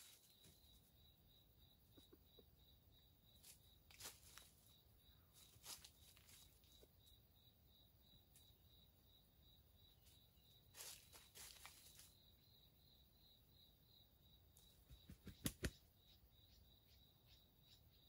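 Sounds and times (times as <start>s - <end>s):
faint pulsing insect chirr: 0.0s - 18.0s
soft rustles: 3.4s - 4.7s, 5.4s - 6.9s, 10.0s - 12.2s.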